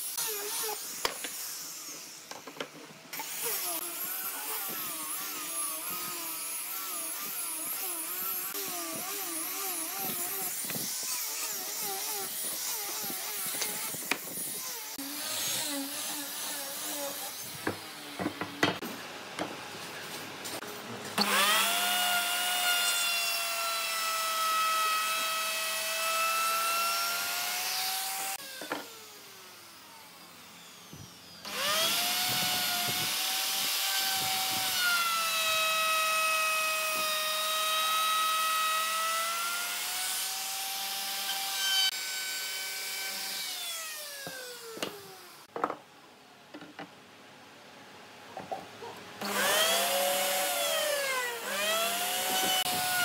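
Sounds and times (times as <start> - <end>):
electric power tool whining on wood: 0.0 - 18.8, 21.2 - 45.5, 49.2 - 53.0.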